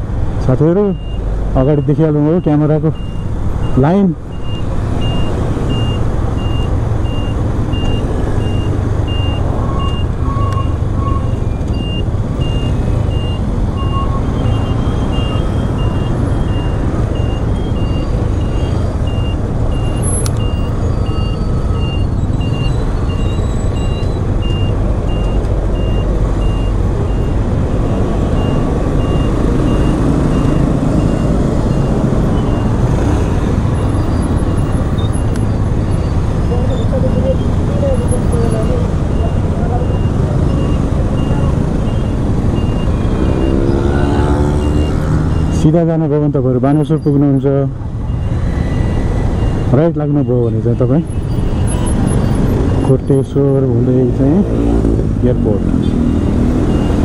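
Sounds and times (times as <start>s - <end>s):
motorcycle engine and road rumble: 0.0s - 57.0s
short high-pitched beeps: 0.9s - 45.6s.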